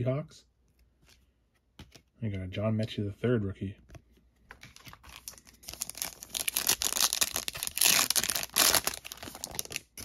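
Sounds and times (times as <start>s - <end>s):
foil wrapper crinkling and tearing: 5.0s - 10.0s.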